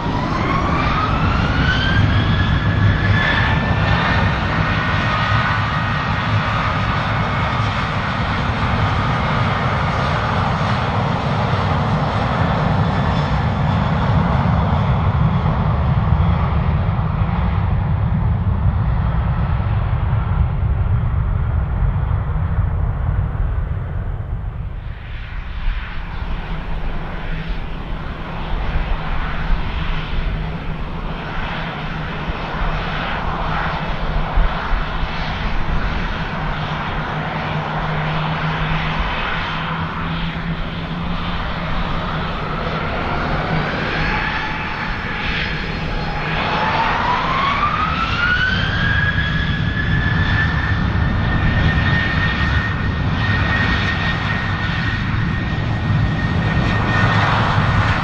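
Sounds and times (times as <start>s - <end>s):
jet engine whine: 0.0s - 58.0s
low engine rumble: 19.5s - 47.1s.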